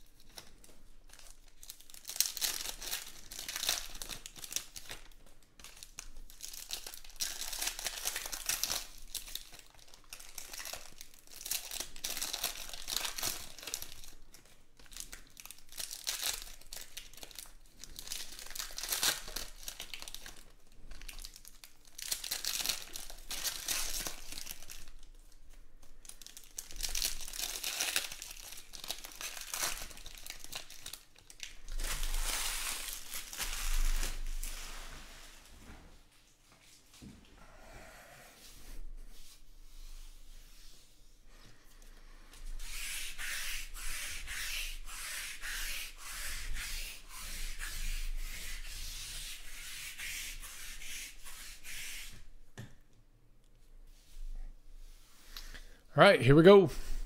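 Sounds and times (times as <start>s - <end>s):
foil wrappers tearing and crinkling: 0.1s - 25.1s, 26.0s - 34.7s.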